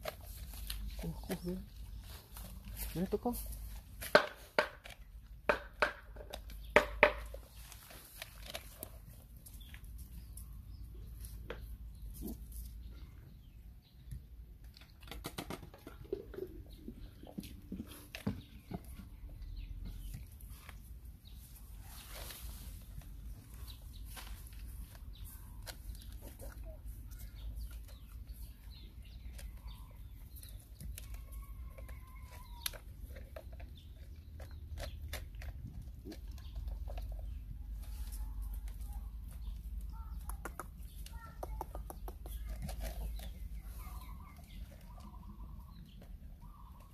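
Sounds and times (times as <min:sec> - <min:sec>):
paws clicking on concrete: 0:00.0 - 0:46.9
puppies eating from plastic plate: 0:28.7 - 0:39.8.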